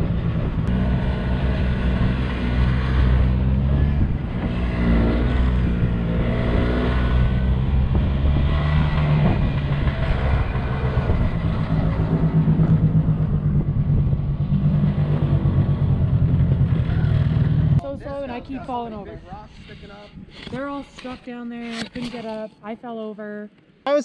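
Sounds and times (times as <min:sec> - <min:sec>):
snowmobile engine revving: 0:00.0 - 0:19.0.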